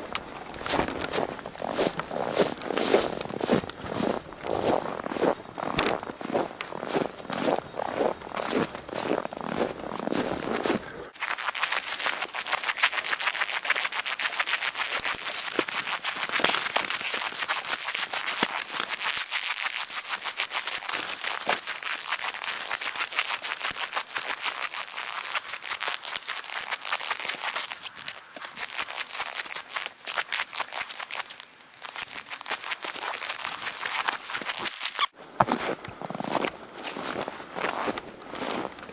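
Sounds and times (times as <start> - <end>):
footsteps crunching through snow: 0.0 - 38.9.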